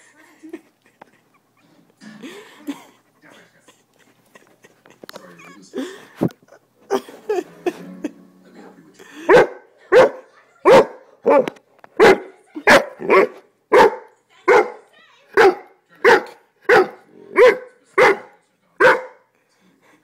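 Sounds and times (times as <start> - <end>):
puppy barking: 9.3 - 19.2.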